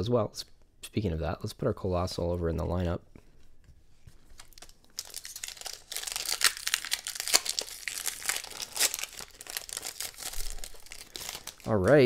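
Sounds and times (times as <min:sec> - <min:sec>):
foil wrapper crinkling: 0:04.2 - 0:12.0.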